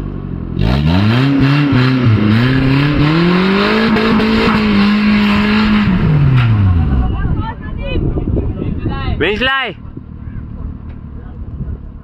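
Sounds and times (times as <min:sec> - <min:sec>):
off-road vehicle engine revving: 0:00.0 - 0:12.0.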